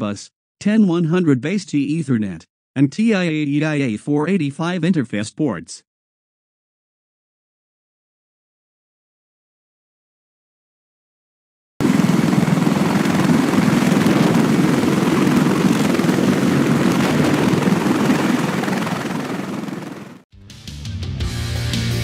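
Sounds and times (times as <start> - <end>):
helicopter rotor and turbine noise: 11.8 - 20.2.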